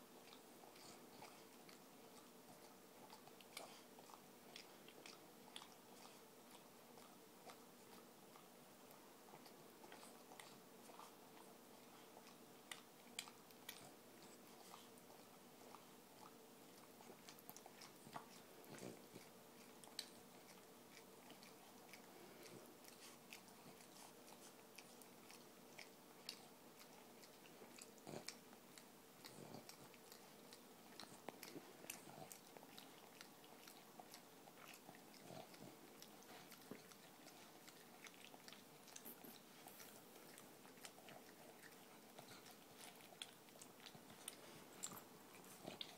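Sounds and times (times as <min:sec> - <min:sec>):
dog tongue licking and smacking: 0:00.0 - 0:45.9.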